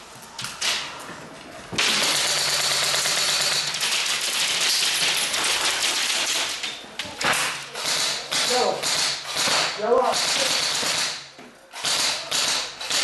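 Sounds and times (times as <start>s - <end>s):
electric rifle firing full-auto: 1.8s - 6.6s, 11.8s - 13.0s.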